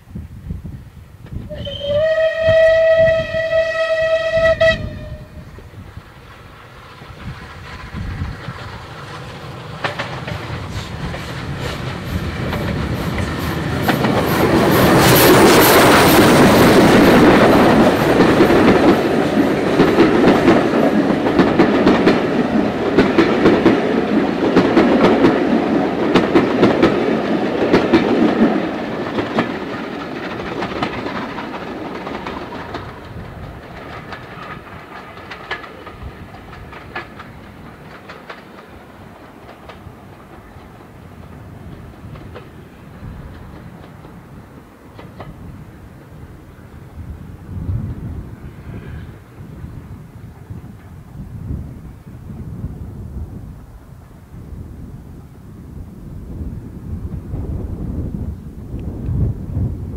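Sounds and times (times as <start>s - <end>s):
steam locomotive passing: 0.0s - 59.9s
train wheels clicking over rail joints: 1.2s - 46.7s.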